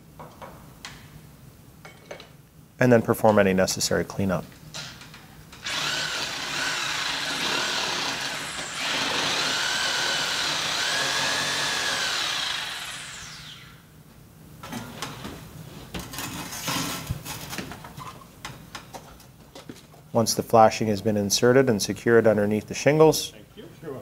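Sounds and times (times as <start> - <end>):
reciprocating saw cutting: 5.6 - 13.8.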